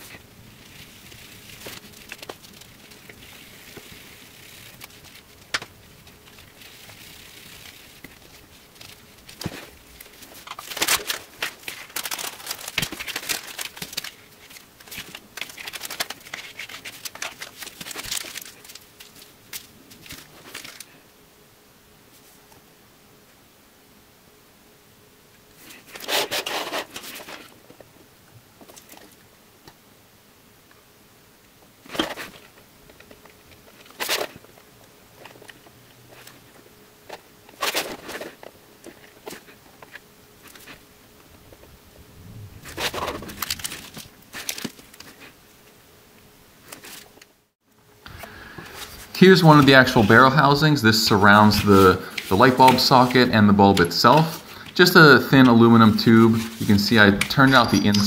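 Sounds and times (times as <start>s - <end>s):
cardboard crunching and scraping: 0.0s - 19.3s, 25.6s - 27.5s, 42.6s - 45.4s, 48.7s - 58.0s
plastic bag crinkling: 0.0s - 21.0s, 42.3s - 45.4s, 48.1s - 58.0s.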